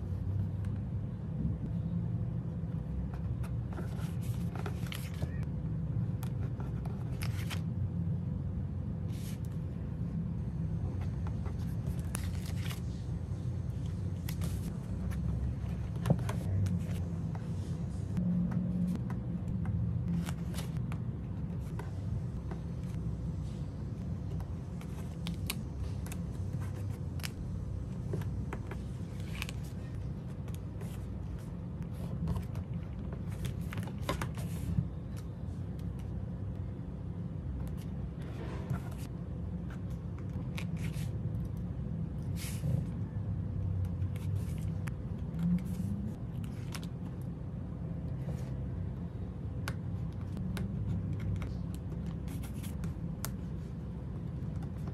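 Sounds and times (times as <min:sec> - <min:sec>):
steady low hum: 0:00.0 - 0:54.9
sticker sheets rustling: 0:28.0 - 0:35.1.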